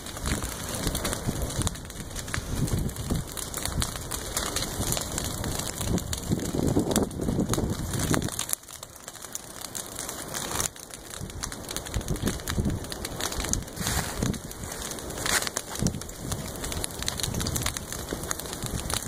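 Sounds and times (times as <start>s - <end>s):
grass fire crackling: 0.0s - 19.0s
rushing gusts of flame and wind: 0.0s - 19.0s.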